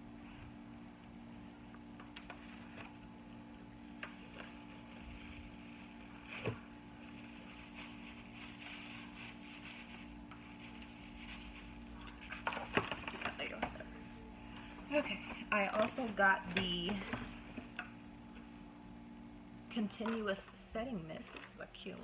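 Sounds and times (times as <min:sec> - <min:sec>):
low room hum: 0:00.0 - 0:22.0.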